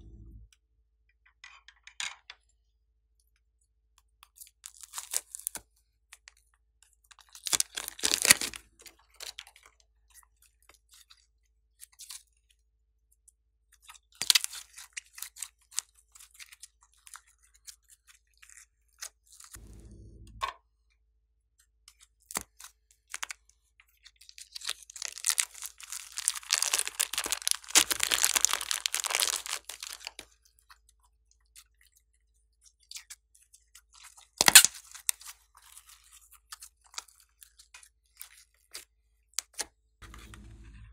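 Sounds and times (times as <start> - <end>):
low squelch: 0.0 - 0.5, 19.6 - 20.5
slime crackling and popping: 7.4 - 8.6, 24.6 - 30.2.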